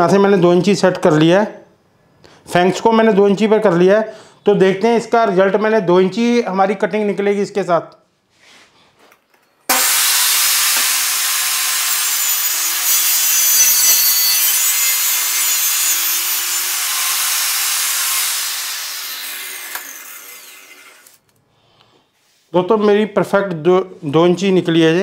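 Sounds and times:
table saw cutting plywood: 9.7s - 21.2s.

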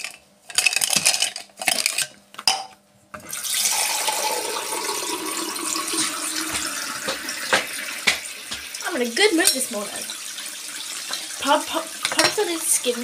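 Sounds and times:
toothbrushes clattering in cup: 0.0s - 2.6s
tap running into sink: 5.8s - 8.8s.

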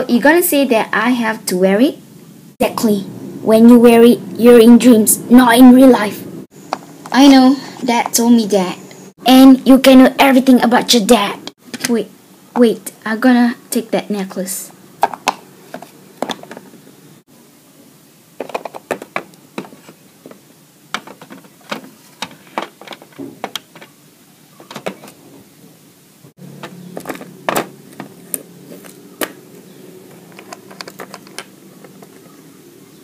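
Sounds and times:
plastic toy pieces tapping: 18.4s - 23.9s, 30.3s - 32.3s.

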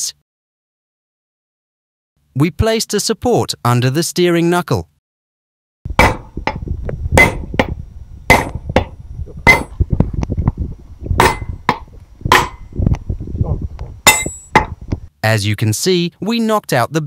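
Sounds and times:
hammer striking metal: 6.0s - 6.6s, 7.2s - 9.8s, 11.2s - 12.7s, 14.0s - 14.8s.

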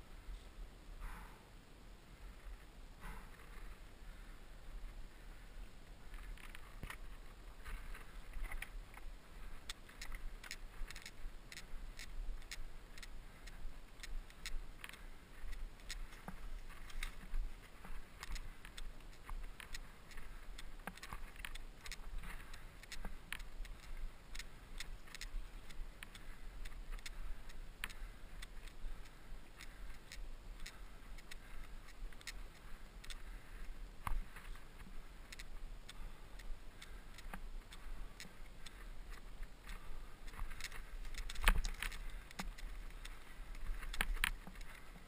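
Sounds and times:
bike clicks and rattles: 6.1s - 45.0s.

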